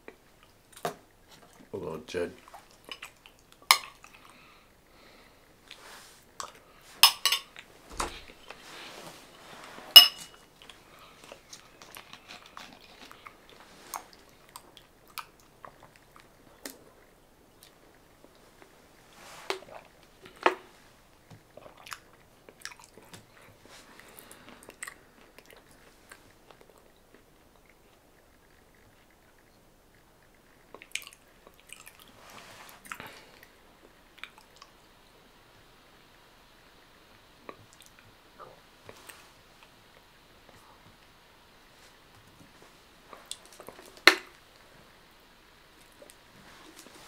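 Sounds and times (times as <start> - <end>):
person chewing food: 2.4 - 8.6, 10.3 - 34.8.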